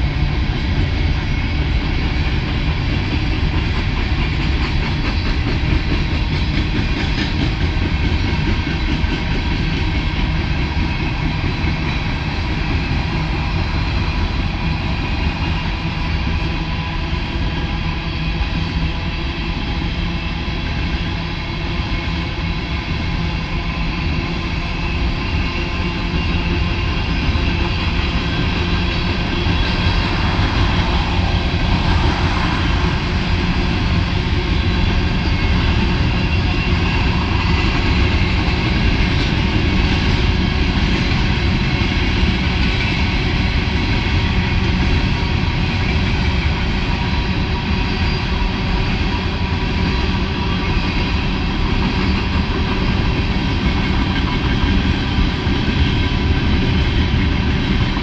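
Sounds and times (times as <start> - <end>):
freight train wheels rumbling: 0.0 - 58.0
car passing on road: 29.2 - 34.8.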